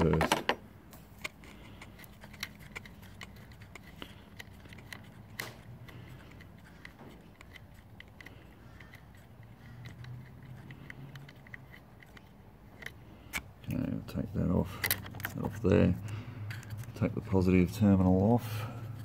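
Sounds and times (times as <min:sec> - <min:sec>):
metallic spanner clicks: 0:01.2 - 0:13.5.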